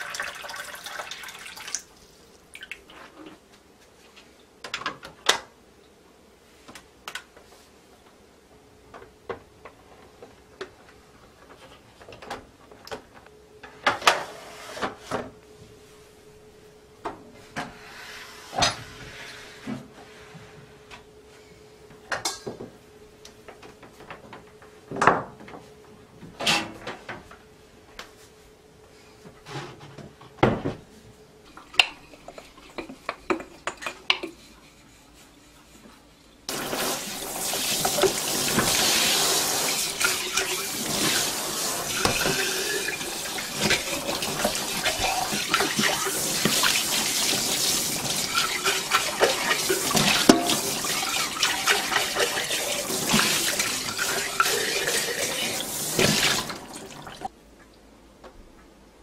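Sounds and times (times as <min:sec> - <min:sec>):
tap water running into sink: 0:00.0 - 0:01.9, 0:36.5 - 0:57.3
kitchen items clicking and knocking: 0:31.6 - 0:34.4.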